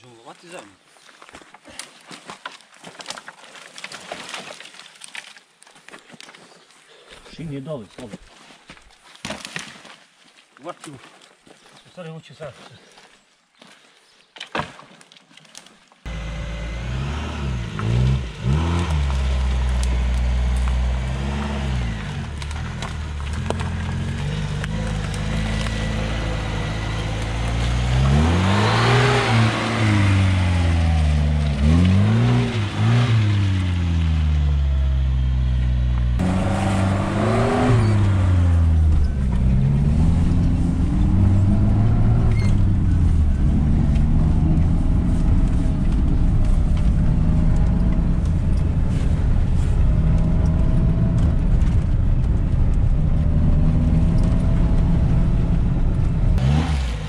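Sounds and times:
car engine under load: 16.1s - 57.0s.

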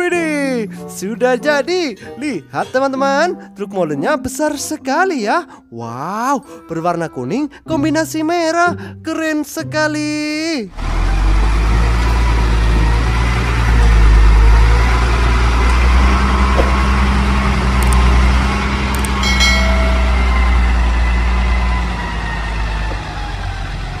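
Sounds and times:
truck diesel engine rumbling: 10.7s - 24.0s
short higher tone: 19.2s - 21.9s.

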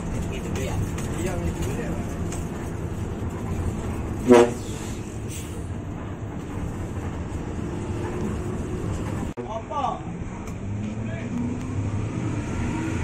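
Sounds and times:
bus engine and road rumble: 0.0s - 13.0s
bus horn toot: 4.2s - 4.9s.

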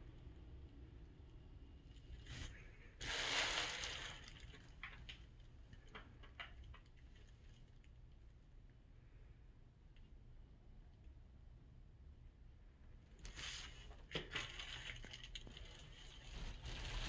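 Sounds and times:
burst of hissing noise: 3.0s - 4.2s.

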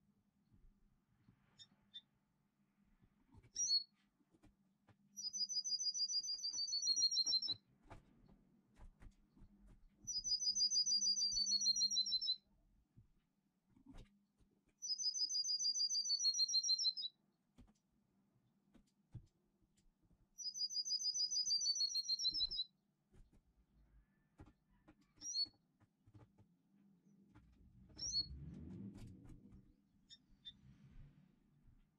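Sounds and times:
bird chirp: 3.4s - 3.9s, 5.1s - 7.6s, 10.0s - 12.5s, 14.8s - 17.2s, 20.3s - 22.8s, 24.0s - 25.6s, 27.9s - 28.4s, 30.0s - 30.6s.

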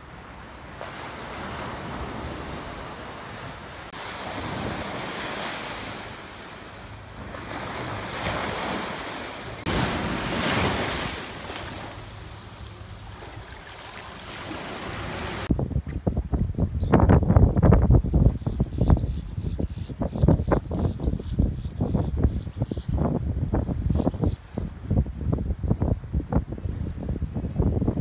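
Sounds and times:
small surf washing up: 0.7s - 15.5s
wind buffeting microphone: 14.5s - 28.0s.

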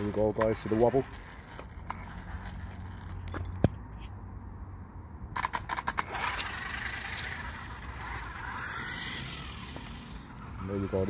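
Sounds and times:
handling clicks and rattles: 0.0s - 4.0s.

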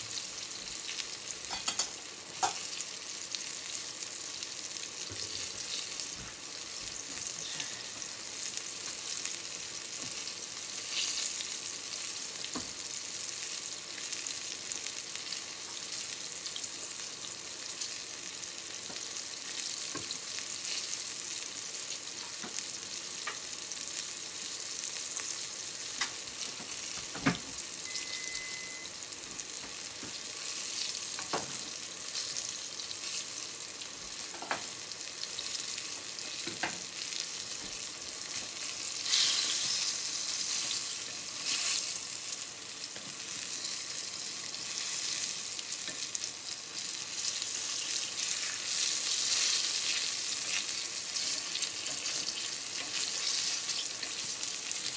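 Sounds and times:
oil sizzling and bubbling: 0.0s - 54.9s
chopsticks turning food in oil: 35.3s - 54.9s.

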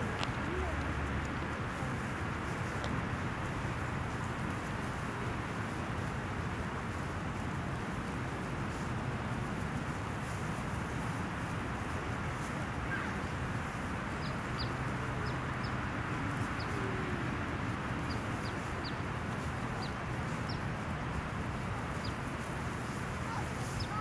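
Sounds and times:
outdoor background noise: 0.0s - 24.0s
birds chirping: 12.9s - 13.4s, 14.1s - 17.2s, 18.0s - 19.1s, 19.8s - 20.7s, 22.9s - 24.0s.

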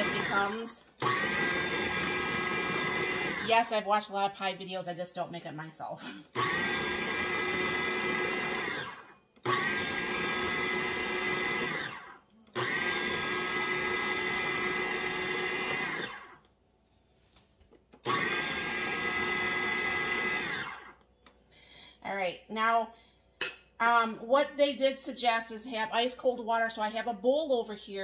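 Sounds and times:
food processor motor whining: 0.0s - 3.6s, 6.2s - 16.4s, 17.9s - 21.0s.

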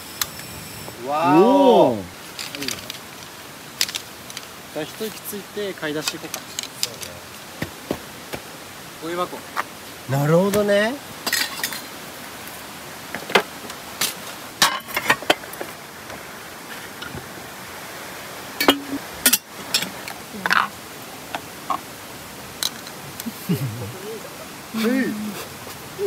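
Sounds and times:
steady hiss: 0.0s - 26.0s
camping gear knocks and clinks: 2.3s - 4.6s, 6.0s - 8.5s, 13.1s - 16.2s, 22.6s - 23.0s.

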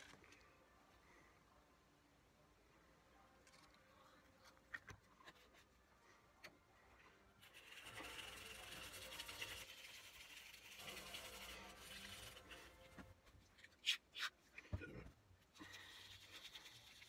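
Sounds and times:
paintbrush rubbing on wood: 7.5s - 13.0s.

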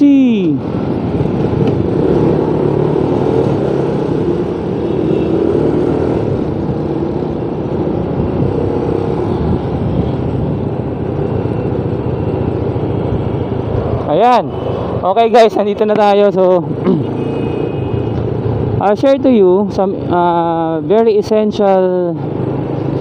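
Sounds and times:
wind rushing over microphone: 0.0s - 15.9s.

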